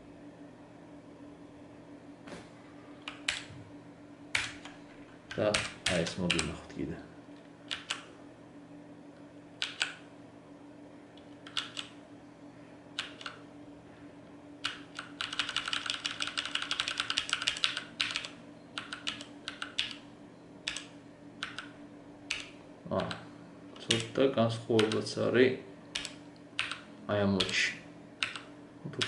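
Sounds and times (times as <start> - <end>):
mechanical keyboard typing: 3.1 - 3.5, 4.3 - 4.7, 5.3 - 6.6, 7.7 - 8.0, 9.6 - 10.0, 11.3 - 11.9, 13.0 - 13.4, 14.6 - 20.0, 20.6 - 21.7, 22.3 - 23.2, 23.8 - 24.2, 24.8 - 25.1, 26.0 - 26.8, 28.2 - 29.0.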